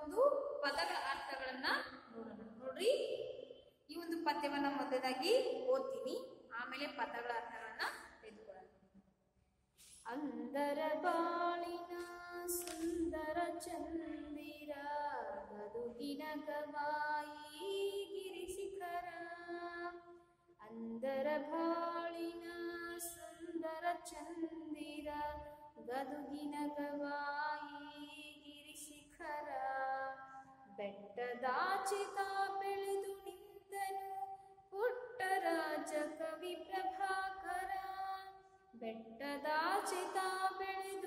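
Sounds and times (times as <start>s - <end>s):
woman singing unaccompanied: 10.1s - 20.0s, 20.6s - 34.2s, 34.8s - 41.0s.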